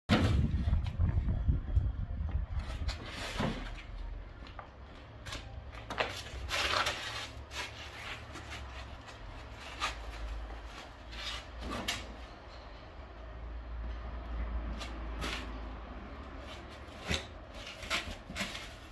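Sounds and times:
low steady rumble: 0.1s - 3.3s.

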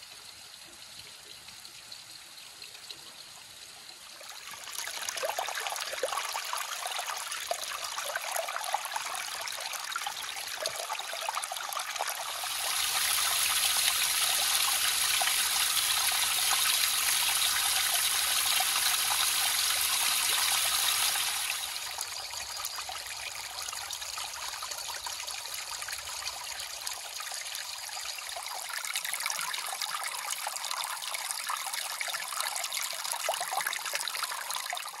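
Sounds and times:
creek water trickling and splashing: 0.0s - 35.0s.

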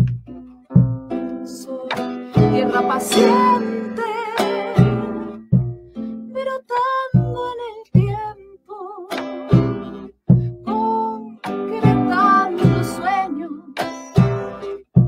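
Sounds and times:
plucked string instrument: 0.0s - 15.0s
woman singing: 1.4s - 5.4s, 6.2s - 9.3s, 10.6s - 13.8s
hand drum strokes: 1.9s - 6.0s.

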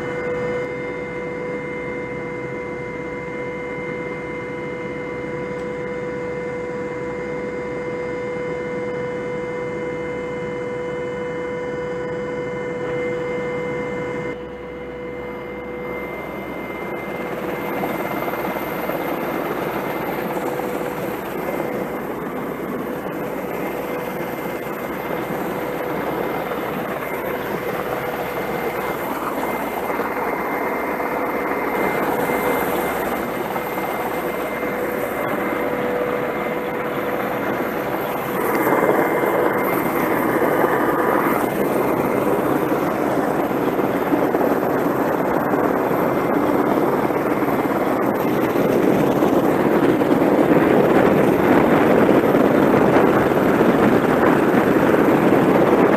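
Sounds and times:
helicopter turbine whine: 0.0s - 55.9s
rotor and wind rushing: 17.0s - 55.9s.

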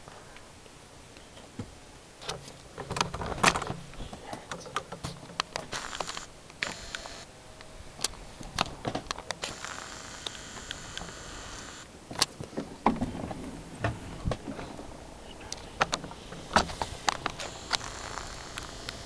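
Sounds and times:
faint steady hiss: 0.0s - 19.0s
camera handling noise: 5.4s - 7.3s, 8.0s - 12.3s, 16.6s - 19.0s.

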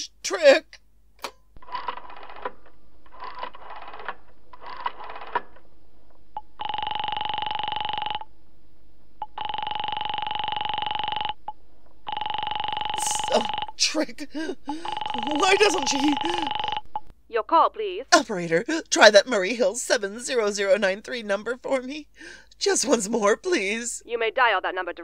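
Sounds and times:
rapid telephone clicking: 1.6s - 5.6s
telephone ringing tone: 6.4s - 8.3s, 9.2s - 17.1s.

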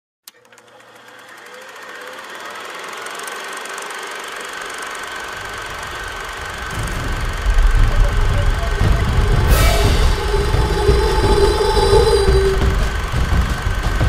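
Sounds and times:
film projector clatter: 0.3s - 8.0s
projector high whine: 1.1s - 14.0s
low rumble: 5.4s - 14.0s.

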